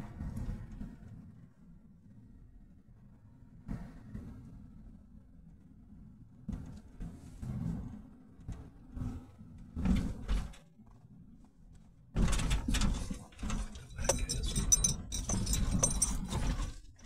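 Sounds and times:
low road rumble: 0:00.0 - 0:17.0
rattling and clinking in car cabin: 0:09.8 - 0:11.0, 0:12.2 - 0:17.0.

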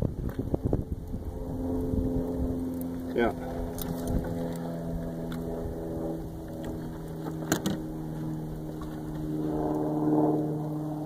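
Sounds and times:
motor droning: 0:00.0 - 0:11.0.

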